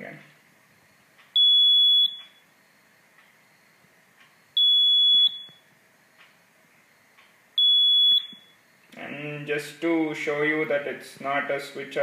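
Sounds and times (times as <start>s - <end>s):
high-pitched buzzer beeps: 1.4s - 3.8s, 4.4s - 5.7s, 6.9s - 8.8s.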